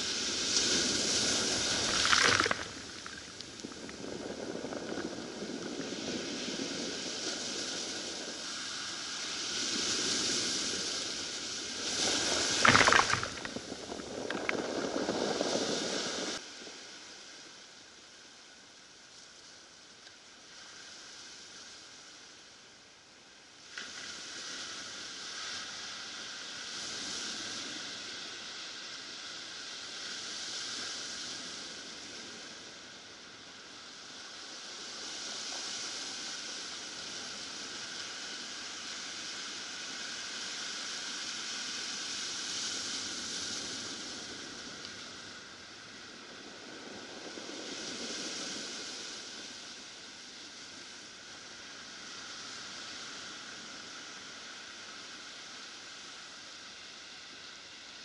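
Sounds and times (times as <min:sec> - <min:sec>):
surf breaking on cobble beach: 0:00.0 - 0:16.4.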